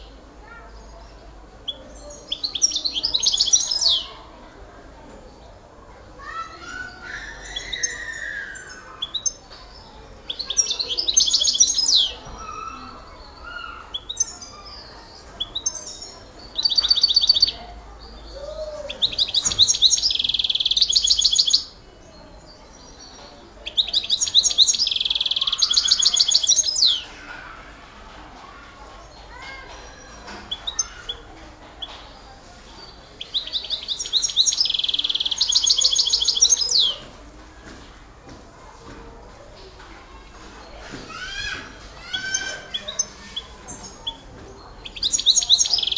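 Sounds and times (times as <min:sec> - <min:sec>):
quiet bird twittering: 0:00.0 - 0:04.3, 0:06.2 - 0:27.1, 0:29.0 - 0:37.1, 0:40.1 - 0:45.9
songbird singing in fast trills: 0:00.0 - 0:04.3, 0:06.2 - 0:27.1, 0:32.7 - 0:37.1, 0:41.1 - 0:45.9.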